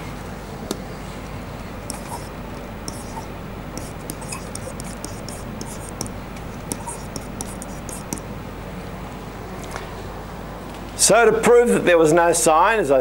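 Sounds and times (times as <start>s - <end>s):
low room hum: 0.0s - 13.0s
pen scratching on whiteboard: 1.8s - 8.3s.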